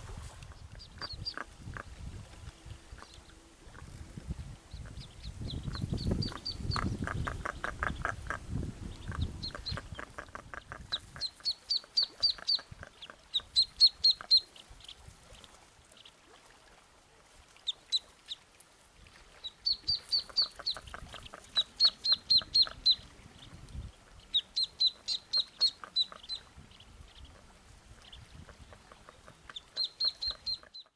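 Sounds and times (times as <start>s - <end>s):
ducklings peeping: 0.4s - 1.9s, 2.9s - 4.0s, 4.7s - 16.2s, 17.6s - 18.4s, 19.4s - 30.9s
duck clucking: 0.9s - 1.9s, 4.8s - 8.4s, 9.0s - 14.5s, 19.9s - 23.0s, 24.3s - 26.4s, 28.4s - 30.9s.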